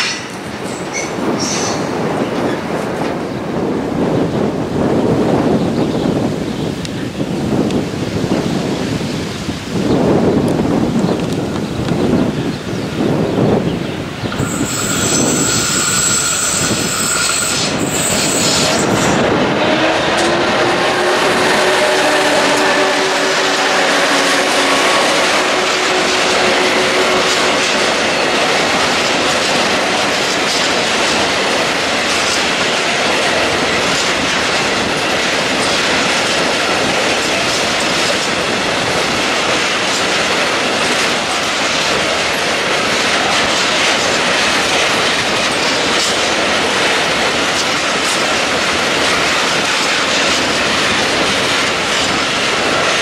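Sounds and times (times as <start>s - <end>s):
diesel locomotive engine drone: 10.4s - 53.0s
train wheels clattering over rail joints: 14.2s - 53.0s.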